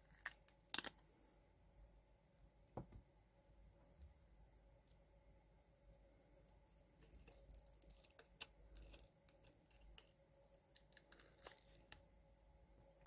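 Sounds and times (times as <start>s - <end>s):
silicone mold peeling crackle: 0.0s - 1.0s, 6.7s - 12.1s.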